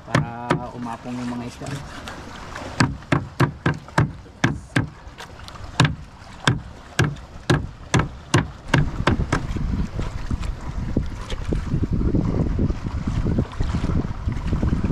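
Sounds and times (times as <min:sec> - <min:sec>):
cleaver chopping on wood: 0:00.0 - 0:00.7, 0:02.8 - 0:05.0, 0:05.8 - 0:09.5.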